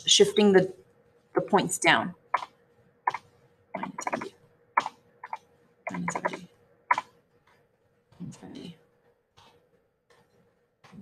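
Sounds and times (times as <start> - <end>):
computer keyboard typing: 2.3 - 7.6.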